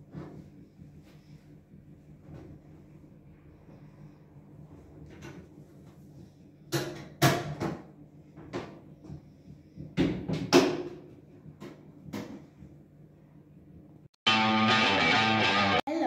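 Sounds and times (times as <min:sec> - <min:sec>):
washing machine knocks and bangs: 0:06.7 - 0:09.1, 0:09.8 - 0:12.5.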